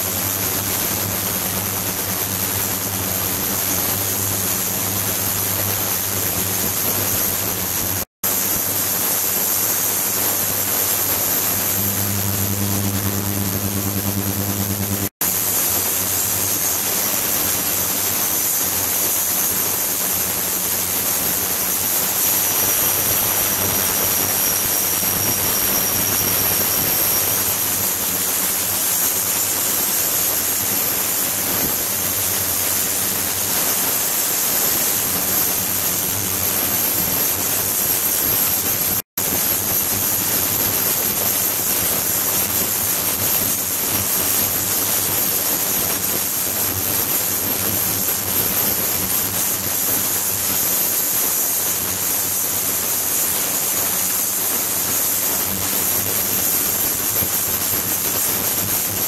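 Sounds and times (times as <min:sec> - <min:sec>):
high-pitched whine: 0:00.0 - 0:17.4
low hum: 0:11.3 - 0:15.1.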